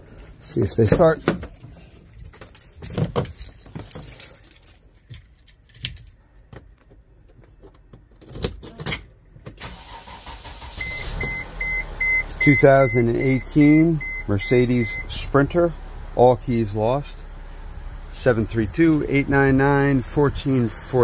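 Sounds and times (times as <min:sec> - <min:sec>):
keys jangling: 0:01.6 - 0:06.2
dashboard warning chime beeping: 0:10.8 - 0:15.4
low engine rumble: 0:10.9 - 0:21.0.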